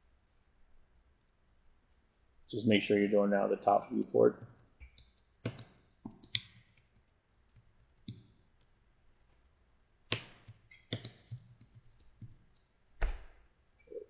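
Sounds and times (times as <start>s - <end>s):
computer keyboard typing: 4.0s - 8.7s, 9.3s - 12.7s.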